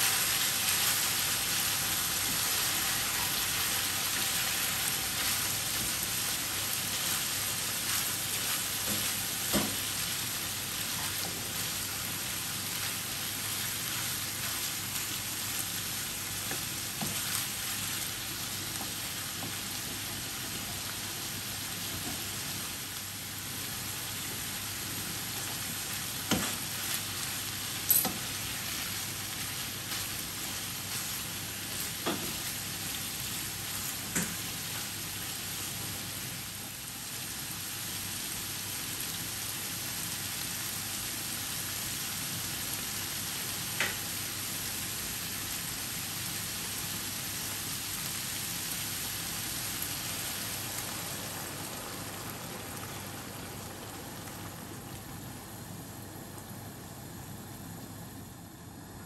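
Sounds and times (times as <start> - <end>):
meat sizzling in a pan: 0.0 - 57.5.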